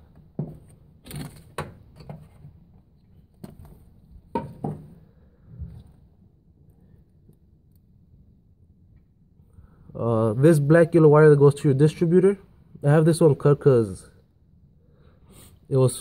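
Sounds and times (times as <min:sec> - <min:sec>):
hands handling wiring and connectors: 0:00.0 - 0:04.8.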